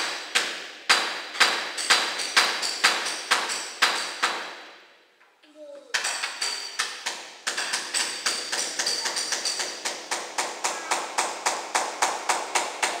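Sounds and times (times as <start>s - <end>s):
hammer striking steel chisel: 5.9s - 13.0s.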